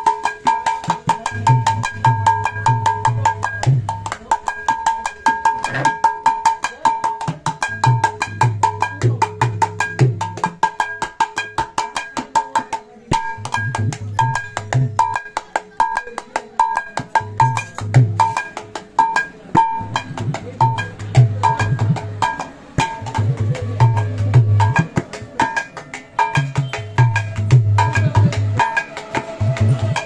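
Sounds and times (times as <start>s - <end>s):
hand drum treble strokes: 0.0s - 30.0s.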